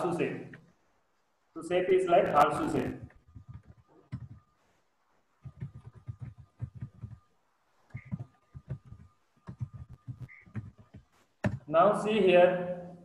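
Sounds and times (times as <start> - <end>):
computer keyboard typing: 2.4 - 4.6, 5.4 - 11.7.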